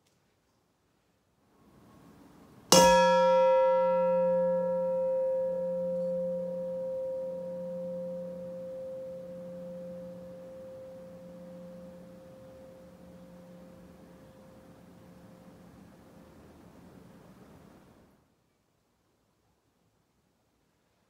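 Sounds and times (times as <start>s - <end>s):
steel bowl struck and ringing: 2.7s - 15.8s.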